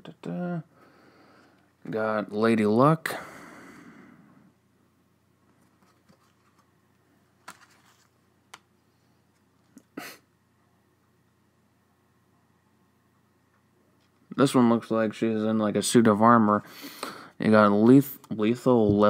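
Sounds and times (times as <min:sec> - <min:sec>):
paper postcards clicking and rustling: 0:07.4 - 0:08.6.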